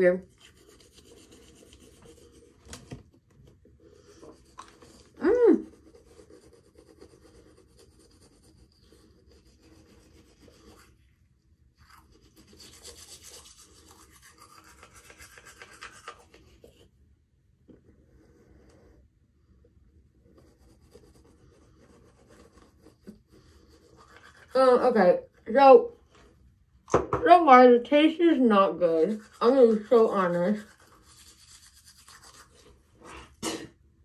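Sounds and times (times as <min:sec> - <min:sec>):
toothbrush scrubbing teeth: 0:00.2 - 0:02.6, 0:03.9 - 0:11.0, 0:11.8 - 0:16.9, 0:20.3 - 0:25.0, 0:28.0 - 0:33.3.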